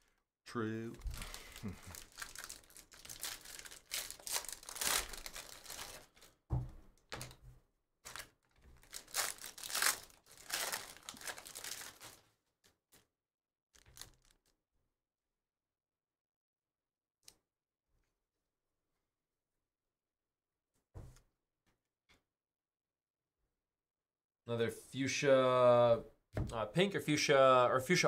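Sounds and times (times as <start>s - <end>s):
foil wrapper crinkling: 1.0s - 6.4s, 8.0s - 12.3s, 13.8s - 14.5s.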